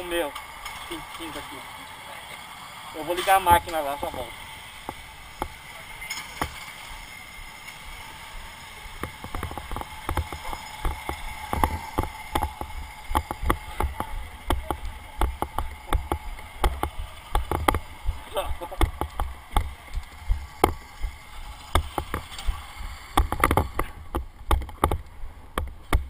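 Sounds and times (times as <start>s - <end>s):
steady hiss: 0.0s - 26.0s
low rumbles: 3.6s - 26.0s.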